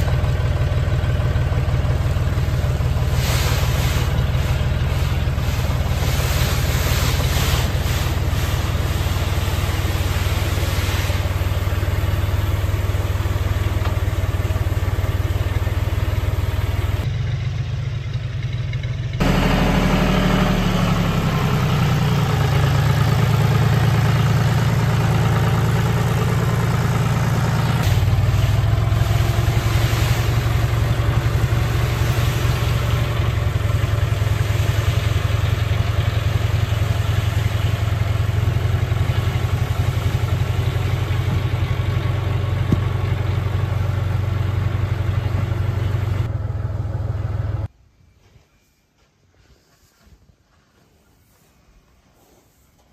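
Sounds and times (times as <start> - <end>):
tractor engine idling: 0.0 - 47.7
grain pouring hiss: 1.7 - 17.1, 19.2 - 42.4, 51.0 - 52.9.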